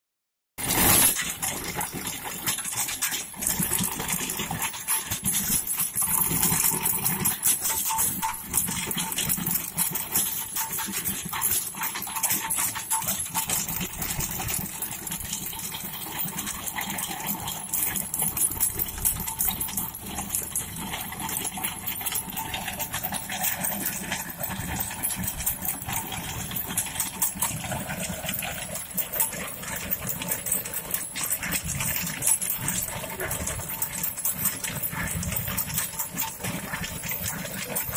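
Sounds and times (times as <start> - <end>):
digging chain clattering: 0.6 - 37.9
tractor engine running: 3.4 - 37.9.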